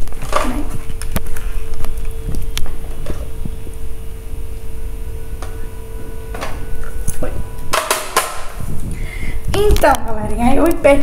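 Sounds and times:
steady hum tone: 0.0s - 11.0s
intercom handset handling rumble: 5.2s - 10.1s.

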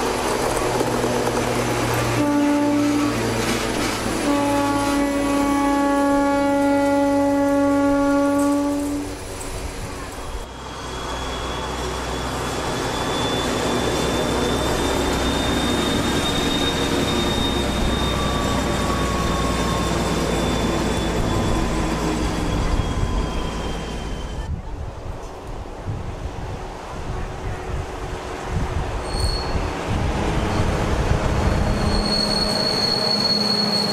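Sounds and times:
diesel locomotive engine running: 0.0s - 33.9s
locomotive horn blast: 2.1s - 9.2s
turbocharger whistle: 10.5s - 24.5s, 31.7s - 33.9s.

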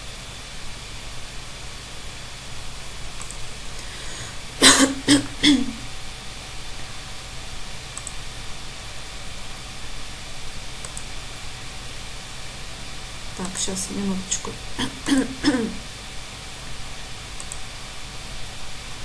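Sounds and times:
faint steady hiss: 0.0s - 19.0s
woman coughing: 4.6s - 5.8s, 14.8s - 15.9s.

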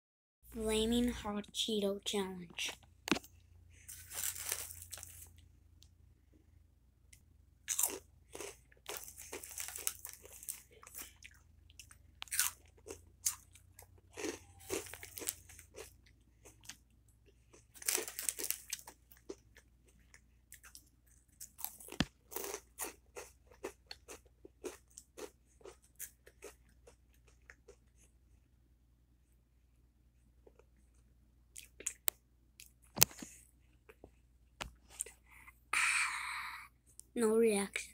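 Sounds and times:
snack crunching and chewing: 7.6s - 28.2s, 30.4s - 34.1s.

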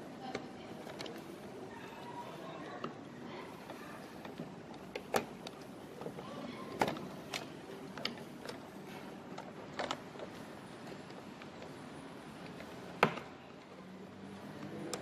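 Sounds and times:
plastic and metal parts clicking: 0.2s - 11.8s.

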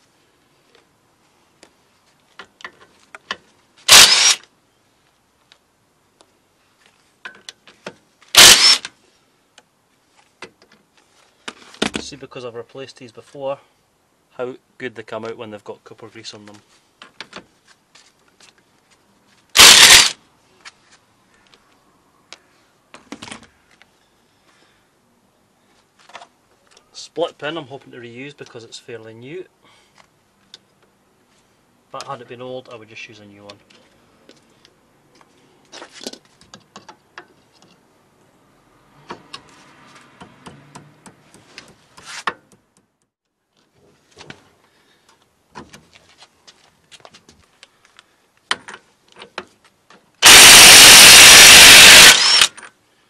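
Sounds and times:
impact wrench hammering: 50.2s - 52.5s.

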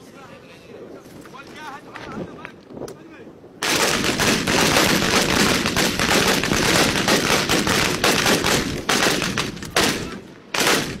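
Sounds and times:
rapid automatic gunfire: 3.6s - 11.0s.

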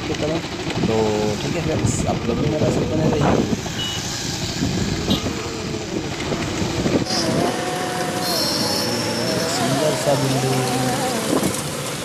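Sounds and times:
motorbike running: 0.0s - 12.0s
road noise: 0.0s - 12.0s
wind buffeting microphone: 0.8s - 3.8s, 4.4s - 7.9s, 9.7s - 12.0s.

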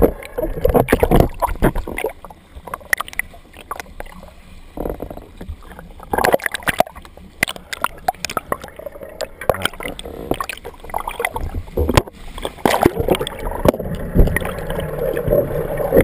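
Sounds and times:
water splashing: 0.0s - 16.0s
water sloshing against camera housing: 4.8s - 15.4s.

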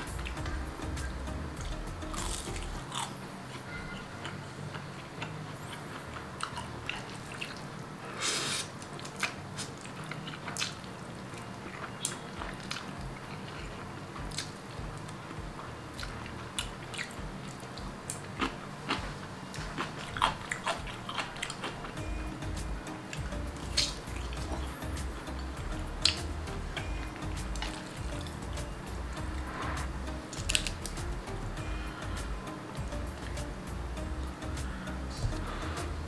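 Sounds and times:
slurping noodles: 8.1s - 8.7s.

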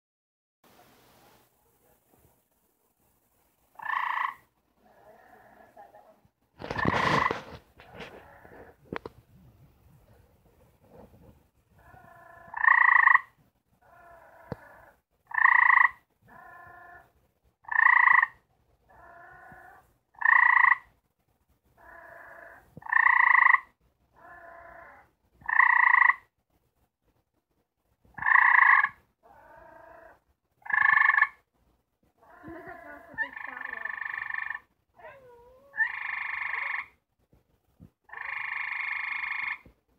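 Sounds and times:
fainter lower frog trills: 3.7s - 5.7s, 11.8s - 21.0s, 21.8s - 26.3s, 28.2s - 31.4s, 32.2s - 37.0s, 38.1s - 39.7s
treefrog loud trills: 3.8s - 4.5s, 11.8s - 20.9s, 21.8s - 26.3s, 28.2s - 31.4s, 32.2s - 37.0s, 38.1s - 39.7s.

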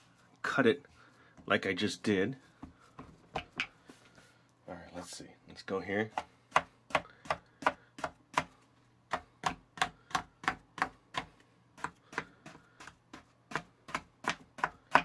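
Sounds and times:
tapping on cutting board: 13.5s - 15.0s.

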